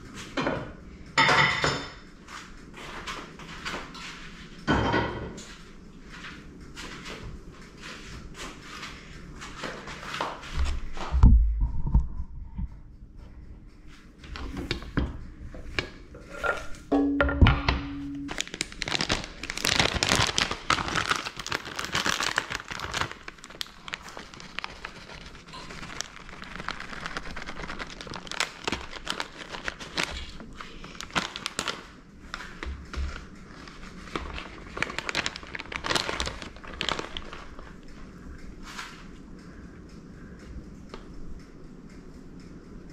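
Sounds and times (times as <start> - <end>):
shredded cheese crinkling: 18.3 - 38.1.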